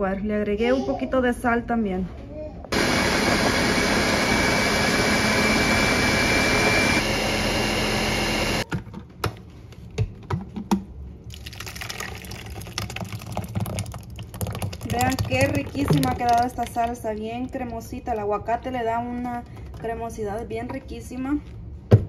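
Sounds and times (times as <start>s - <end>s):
blender whirring: 2.7s - 8.6s
thick salsa pouring into bowl: 11.3s - 17.0s.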